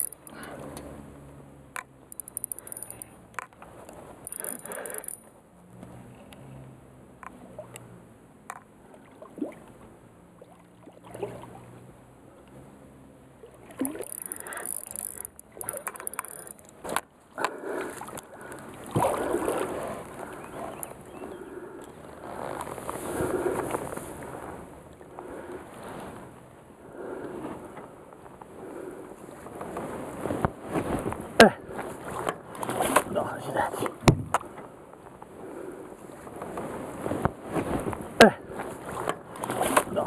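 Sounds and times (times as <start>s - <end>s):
fishing tackle knocks and clicks: 0.0s - 0.9s, 1.7s - 5.3s, 8.5s - 8.7s, 13.8s - 19.1s
water at boat hull: 0.0s - 40.0s.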